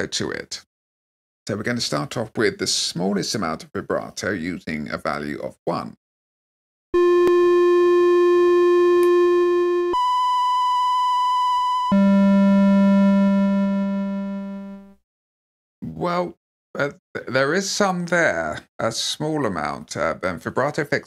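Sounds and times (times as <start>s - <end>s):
synthesizer flute notes with vibrato: 7.0s - 14.8s.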